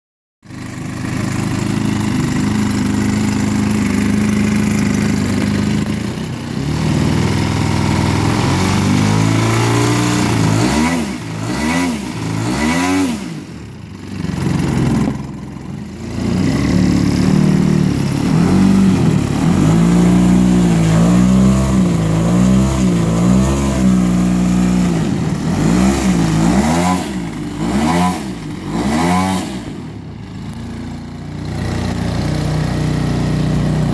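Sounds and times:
model plane engine revving: 0.5s - 33.9s.

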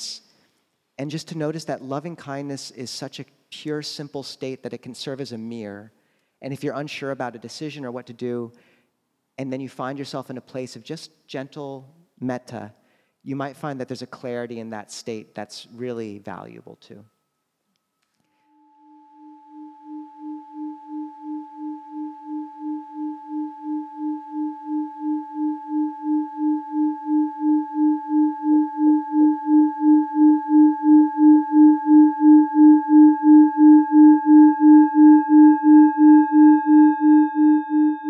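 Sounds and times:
singing bowl ringing: 18.3s - 38.0s.

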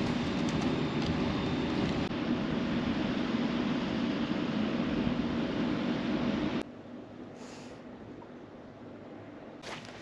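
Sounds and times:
wind turbine turning: 0.0s - 6.6s.

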